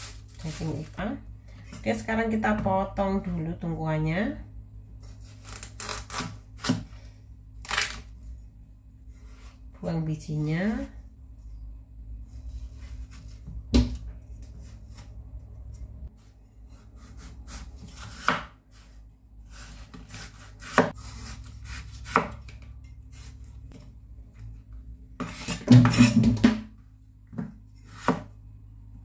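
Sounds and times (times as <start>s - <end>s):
rapid knife chopping: 19.9s - 22.4s.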